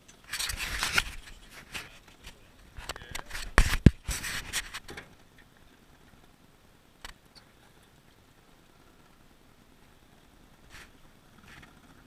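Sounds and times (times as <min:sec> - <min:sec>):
hand rubbing on camera: 0:00.3 - 0:04.9, 0:10.6 - 0:11.7.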